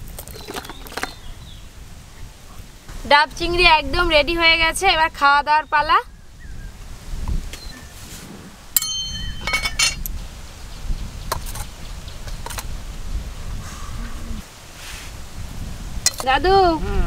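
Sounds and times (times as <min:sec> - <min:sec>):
steel spoon clinking on plate: 0:08.8 - 0:10.1.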